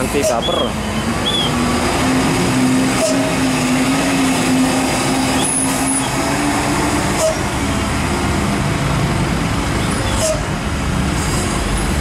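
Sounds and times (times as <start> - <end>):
diesel truck engine straining uphill: 0.0 - 12.0.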